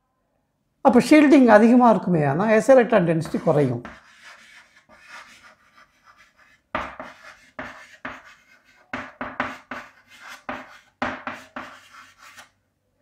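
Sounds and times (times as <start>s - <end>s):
pen scratching writing strokes: 3.2s - 12.5s.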